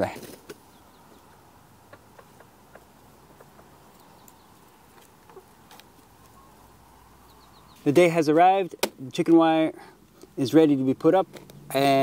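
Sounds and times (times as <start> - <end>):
faint outdoor background: 0.0 - 12.0.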